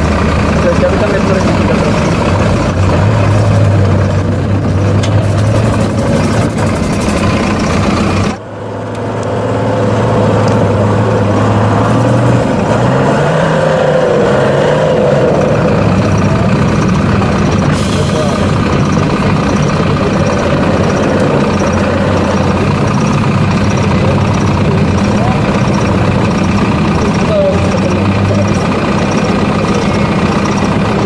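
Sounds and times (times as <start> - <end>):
diesel truck engine under load: 0.0 - 31.0.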